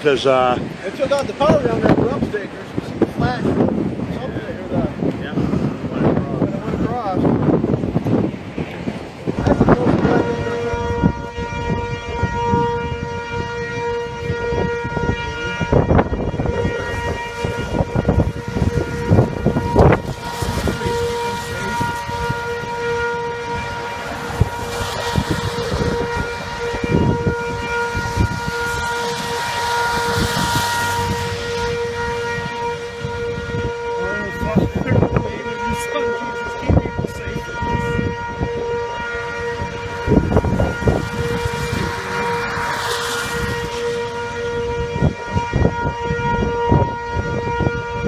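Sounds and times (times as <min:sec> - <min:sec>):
warning siren: 0:00.0 - 0:48.0
wind buffeting microphone: 0:00.0 - 0:48.0
car passing: 0:16.7 - 0:33.2, 0:39.0 - 0:45.0.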